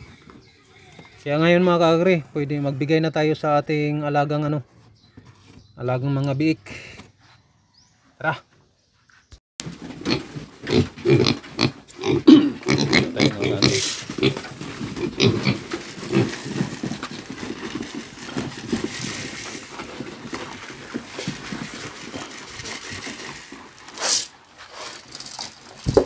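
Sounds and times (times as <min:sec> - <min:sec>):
piglets grunting and squealing: 0:09.8 - 0:17.4
dry feed pouring into trough: 0:18.3 - 0:19.8.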